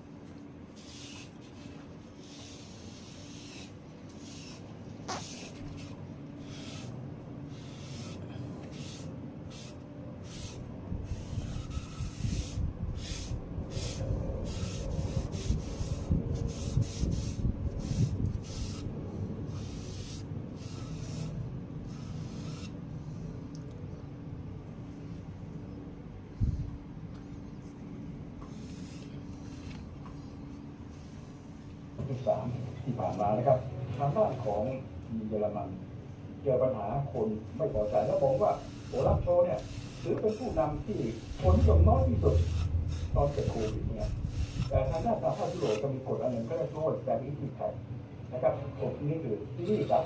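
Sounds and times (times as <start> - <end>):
sponge scrubbing on wood: 0.8 - 6.9, 7.5 - 18.9, 37.6 - 46.9
low rumble of hands shifting: 40.5 - 45.2.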